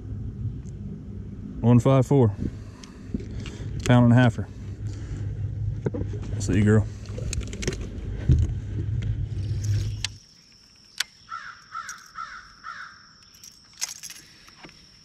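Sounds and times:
low rumbling: 0.0 - 10.2
crow cawing: 11.2 - 13.1.

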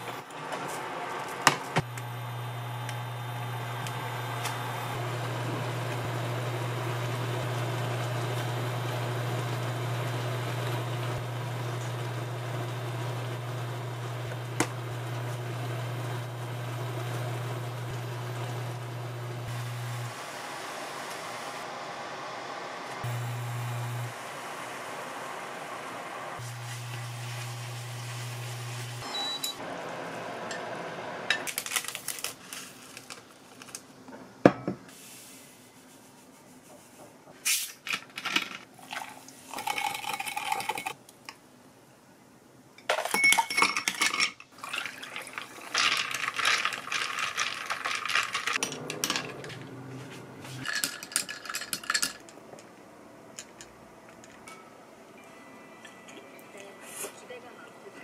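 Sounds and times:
drink being poured: 38.8 - 41.0, 44.6 - 49.7
clinks of glass ice and dishes: 42.8 - 44.4.

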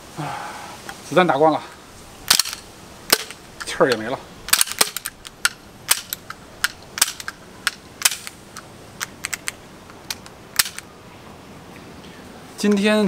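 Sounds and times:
airsoft pistol clicking: 2.3 - 10.8.

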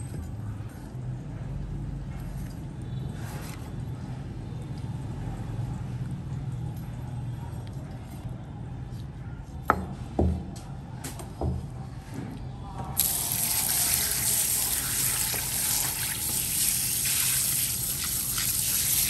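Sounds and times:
tap water running: 13.0 - 19.0.

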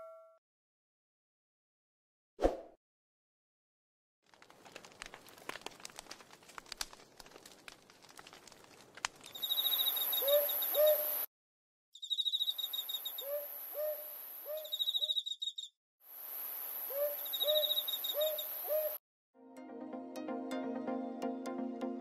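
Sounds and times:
wood fire crackling: 4.2 - 11.2
insect trilling: 9.3 - 11.2, 12.0 - 19.0
owl hooting: 9.4 - 11.3, 12.0 - 15.7, 16.9 - 19.0.

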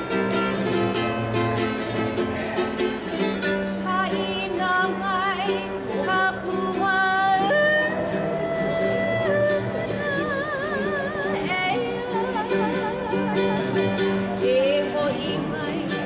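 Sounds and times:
strummed ukulele: 0.0 - 16.0
woman singing with vibrato: 3.7 - 16.0.

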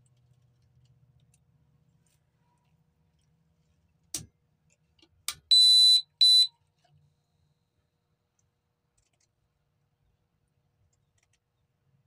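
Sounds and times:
shrill alarm beeps: 5.5 - 6.5.

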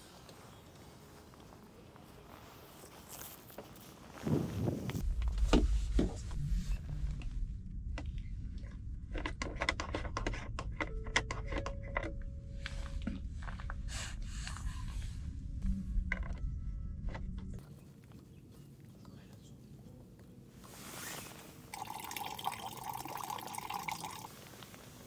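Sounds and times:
low rumble: 4.3 - 10.9, 12.1 - 17.6.

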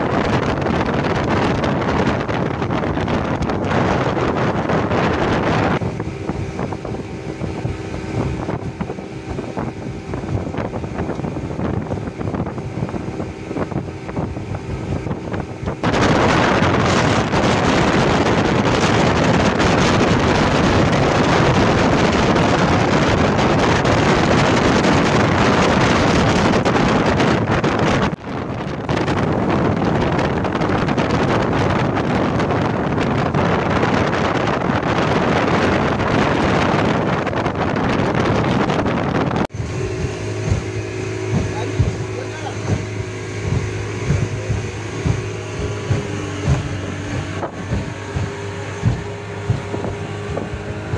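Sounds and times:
speedboat engine droning: 0.0 - 50.9
wind buffeting the microphone: 0.0 - 50.9.

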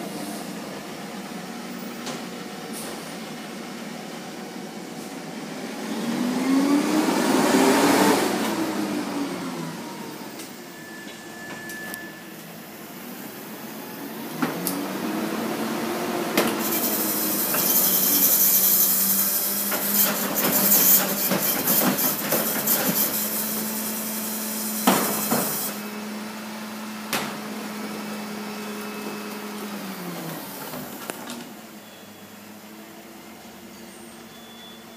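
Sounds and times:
garbage truck engine revving: 5.4 - 10.4
hydraulic packer hissing: 16.4 - 25.9.

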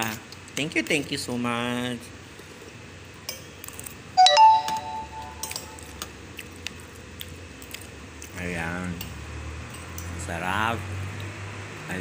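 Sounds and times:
bright ringing ding: 4.2 - 5.9.

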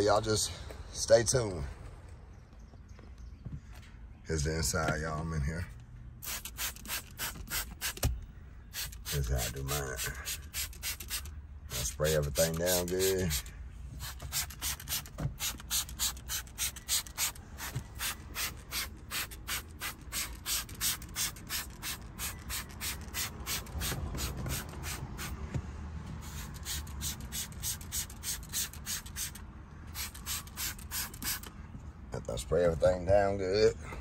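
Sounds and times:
spray bottle squirting: 6.2 - 8.1, 8.7 - 9.3, 10.0 - 11.3, 12.3 - 25.4, 26.2 - 31.5.

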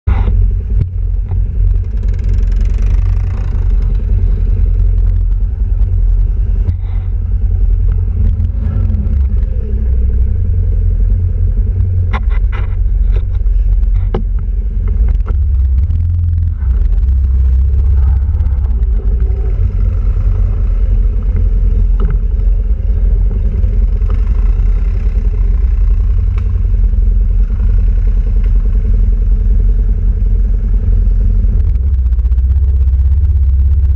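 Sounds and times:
quad bike engine rumbling: 0.0 - 33.9
sharp knocks and rattles: 0.1 - 6.0, 11.8 - 26.7.

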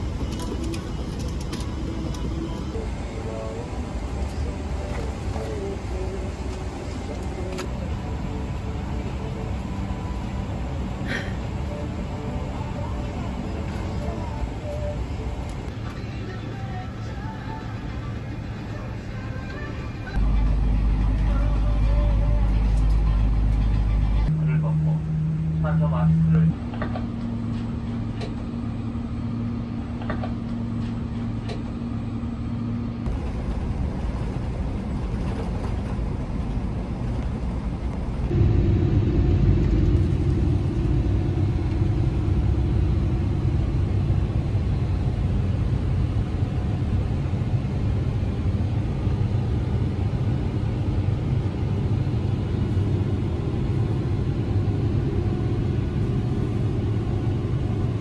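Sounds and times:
jet engines rumbling: 0.0 - 15.8, 26.5 - 58.0
constant hum: 0.0 - 58.0
rushing air: 38.0 - 58.0.

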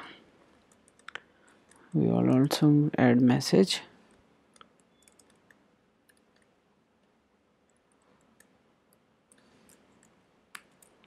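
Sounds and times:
soft keyboard keystrokes: 4.1 - 6.5.

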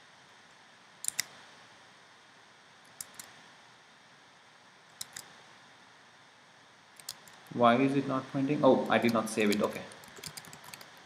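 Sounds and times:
faint room hiss: 0.0 - 11.0
computer clicks: 1.0 - 1.3, 2.9 - 3.3, 4.9 - 5.3, 7.0 - 7.5, 8.8 - 11.0.

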